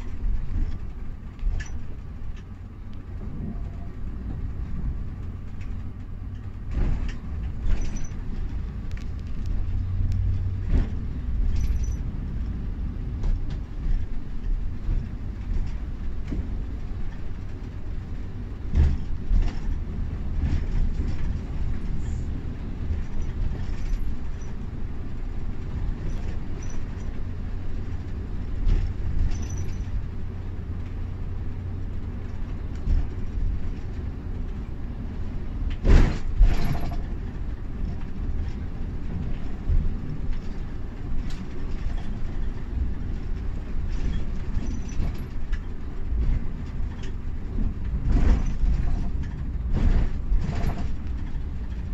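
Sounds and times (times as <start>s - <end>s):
coach engine and tyres rumbling: 0.0s - 51.9s
knocks and rattles: 13.1s - 22.0s, 32.3s - 51.9s.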